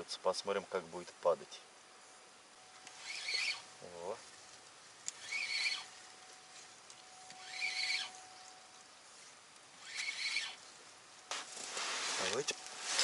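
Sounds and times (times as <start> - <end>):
faint steady tone: 0.0 - 13.0.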